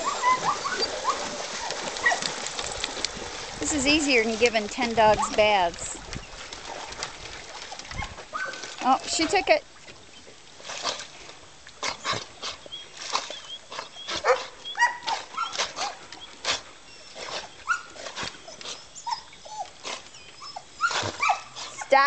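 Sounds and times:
dogs barking: 0.0s - 2.3s, 14.1s - 16.0s, 20.4s - 22.0s
dogs whining and yipping: 0.0s - 2.3s, 8.0s - 8.7s, 13.3s - 22.0s.

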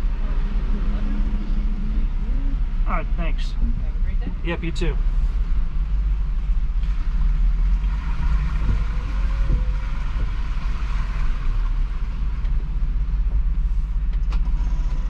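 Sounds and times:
van engine and road rumble: 0.0s - 15.0s.

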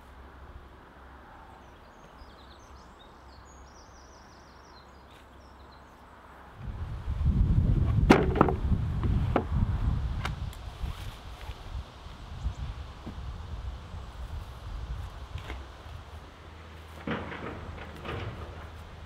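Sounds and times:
low rumble on microphone: 6.6s - 16.2s
sharp clicks and knocks: 8.1s - 9.5s, 16.9s - 19.0s.

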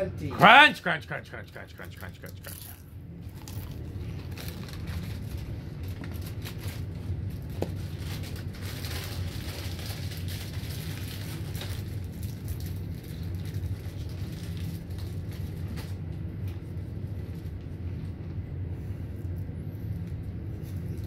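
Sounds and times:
ceiling fan motor hum: 0.0s - 21.0s
crunchy snacks being chewed: 1.5s - 15.8s.

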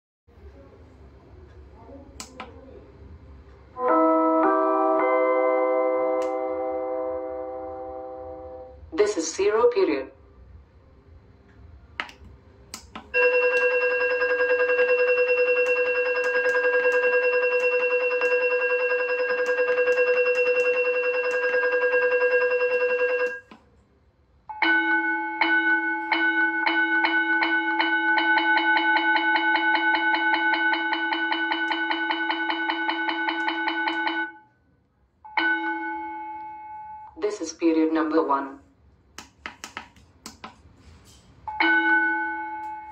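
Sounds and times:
electronic school bell ringing: 3.8s - 8.7s, 13.1s - 23.5s, 24.5s - 34.5s, 35.2s - 37.2s, 41.5s - 42.9s
bell rapid repeated strikes: 13.1s - 23.5s, 24.5s - 34.4s.

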